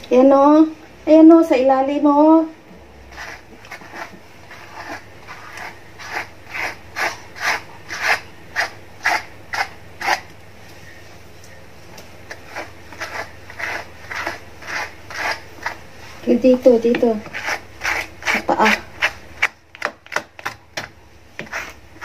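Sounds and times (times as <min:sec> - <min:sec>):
hairbrush scratching through fur: 0:03.1 - 0:10.2, 0:12.3 - 0:16.4, 0:17.2 - 0:19.2.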